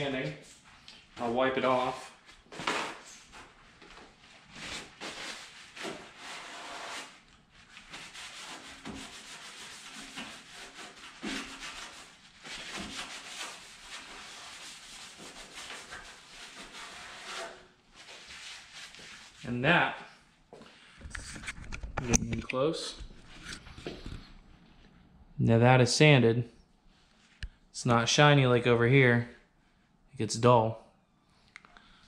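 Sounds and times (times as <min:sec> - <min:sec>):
paper towel tearing: 0:02.5 - 0:03.5, 0:04.5 - 0:19.3
paper towel rubbing gritty cleanser: 0:04.6 - 0:19.6.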